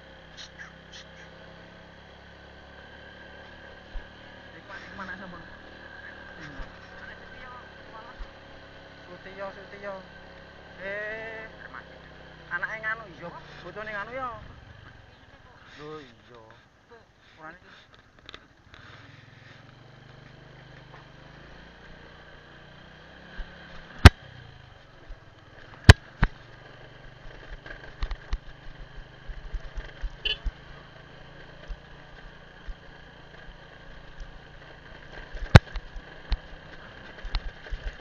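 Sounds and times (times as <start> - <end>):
small motorbike engine: 0.0 - 16.3, 17.7 - 38.0
small ticks: 27.4 - 30.7, 34.0 - 34.4, 35.1 - 38.0.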